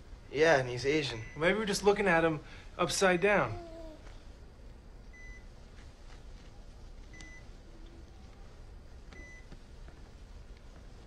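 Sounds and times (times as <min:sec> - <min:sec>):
quiet room hum: 0:00.0 - 0:11.0
monitor beeping: 0:01.0 - 0:01.8, 0:05.1 - 0:05.6, 0:07.1 - 0:07.5, 0:09.1 - 0:09.6.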